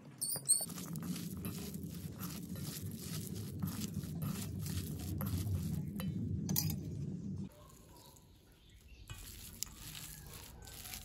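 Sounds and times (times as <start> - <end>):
hand squishing mashed potato: 0.6 - 5.9, 9.1 - 11.0
low steady hum: 0.9 - 7.5.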